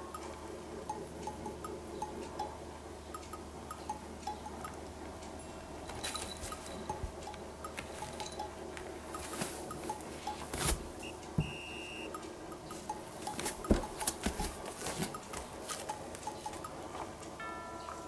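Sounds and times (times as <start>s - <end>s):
short high beep: 11.4s - 12.1s
cat toy knocking and rustling: 13.3s - 15.5s.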